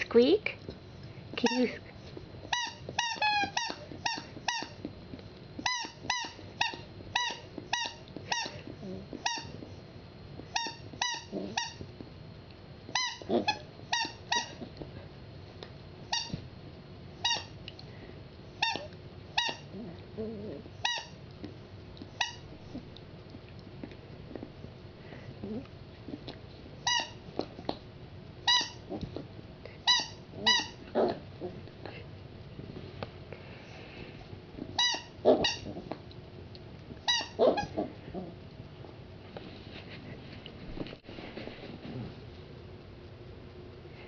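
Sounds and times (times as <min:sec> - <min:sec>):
squeaky dog toy squeaking: 0:02.5 - 0:04.8, 0:05.6 - 0:08.6, 0:10.5 - 0:11.8, 0:13.0 - 0:14.6, 0:17.2 - 0:17.5, 0:18.6 - 0:19.6, 0:20.8 - 0:21.2, 0:22.2 - 0:22.4, 0:26.8 - 0:27.2, 0:28.5 - 0:28.8, 0:29.8 - 0:30.8, 0:34.8 - 0:35.7, 0:37.1 - 0:37.7.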